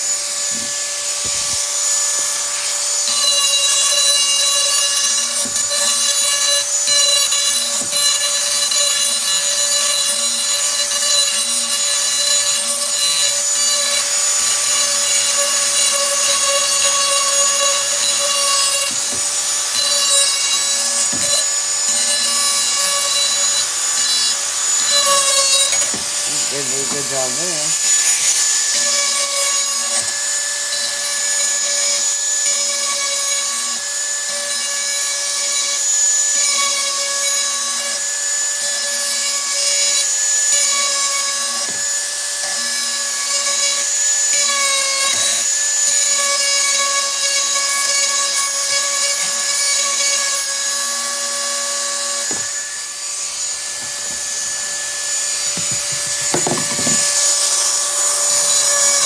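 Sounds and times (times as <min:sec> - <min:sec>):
electric grinder whining: 0:00.0 - 0:59.0
grinding against metal: 0:02.2 - 0:32.8, 0:42.7 - 0:59.0.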